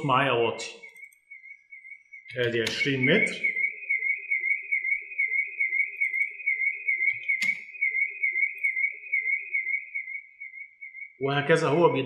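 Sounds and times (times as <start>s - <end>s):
warbling siren: 0.0s - 12.0s
click: 7.1s - 7.6s.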